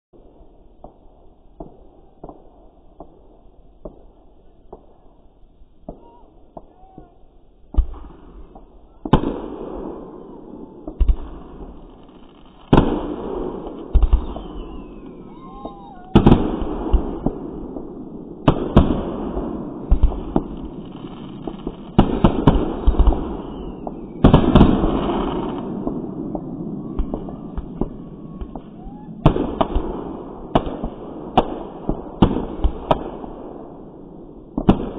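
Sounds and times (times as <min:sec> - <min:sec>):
firework crackle: 0:00.2 - 0:34.9
firework bangs with rumbling echo: 0:05.8 - 0:34.9
small firework pops: 0:10.8 - 0:19.0, 0:19.9 - 0:33.3.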